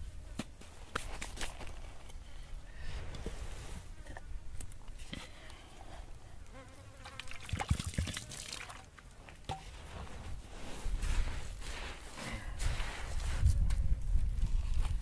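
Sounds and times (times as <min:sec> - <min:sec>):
hands scraping dry soil: 0:03.0 - 0:04.0, 0:09.2 - 0:15.0.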